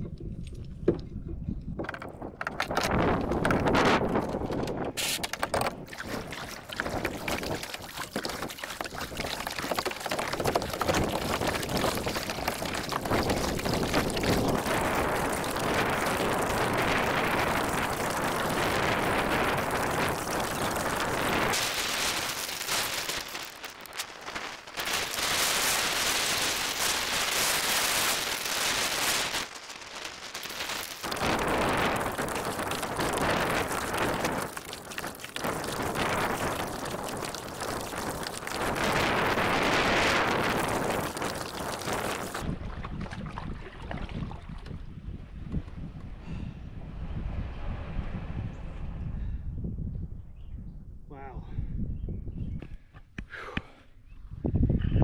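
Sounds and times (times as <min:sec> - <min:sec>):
wind buffeting microphone: 0:00.0 - 0:23.2, 0:30.8 - 0:53.3, 0:54.0 - 0:55.0
kayak paddle splashing water: 0:02.5 - 0:23.9, 0:30.5 - 0:44.8.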